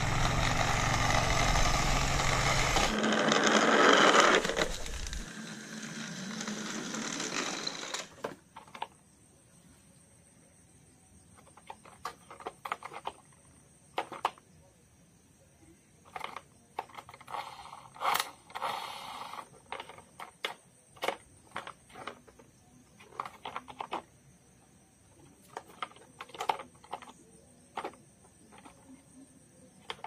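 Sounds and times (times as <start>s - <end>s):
plastic scraping rattle: 0.0s - 9.0s, 11.4s - 14.4s, 16.0s - 24.2s, 25.4s - 29.1s, 29.8s - 30.0s
plastic toy car clicks: 2.7s - 9.0s, 11.4s - 14.5s, 16.0s - 22.4s, 23.0s - 24.1s, 25.4s - 29.1s, 29.8s - 30.0s.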